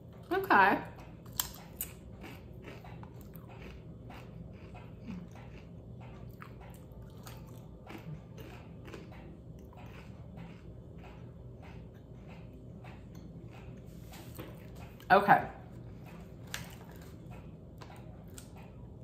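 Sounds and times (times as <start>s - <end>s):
chips being chewed: 1.2s - 13.8s, 16.1s - 18.8s.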